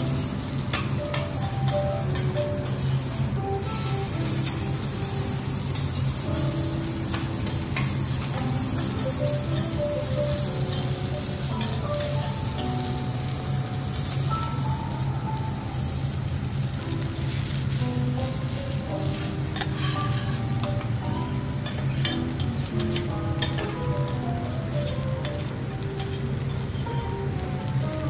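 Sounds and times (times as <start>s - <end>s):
steak sizzling on a griddle: 0.0s - 28.0s.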